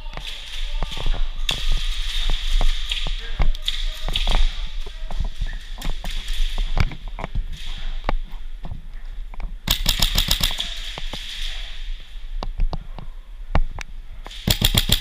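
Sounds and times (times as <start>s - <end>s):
airsoft rifle full-auto burst: 9.7s - 10.6s, 14.4s - 15.0s
airsoft gunfire clicks: 9.7s - 10.7s, 14.4s - 15.0s.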